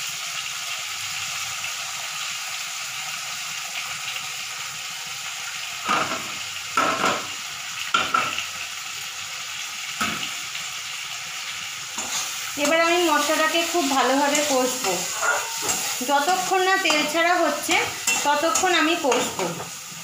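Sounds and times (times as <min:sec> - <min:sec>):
masala sizzling in oil: 0:00.0 - 0:20.0
steel spatula scraping: 0:12.0 - 0:20.0.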